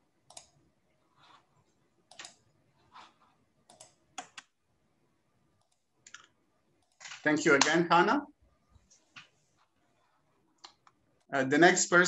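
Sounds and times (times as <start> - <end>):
computer keys clicking: 0.2 - 0.6, 2.1 - 2.5, 3.6 - 4.6, 5.6 - 7.8, 10.6 - 11.0.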